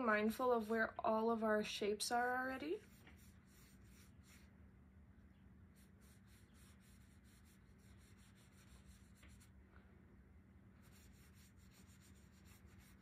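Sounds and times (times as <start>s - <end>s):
low steady hum: 0.0s - 13.0s
paintbrush scratching on paper: 2.8s - 4.5s, 5.7s - 9.5s, 10.8s - 13.0s.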